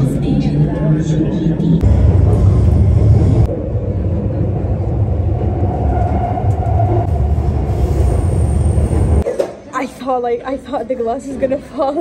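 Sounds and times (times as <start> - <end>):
subway train rumble: 0.0 - 12.0.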